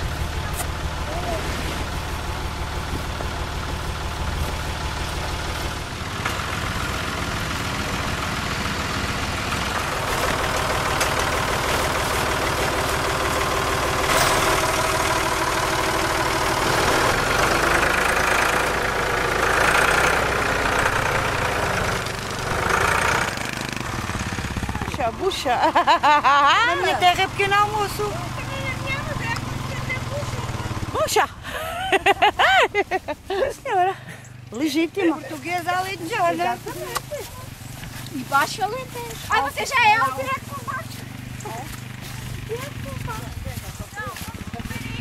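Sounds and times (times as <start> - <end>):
engine idling: 0.0 - 45.0
canvas tarps rustling: 34.6 - 45.0.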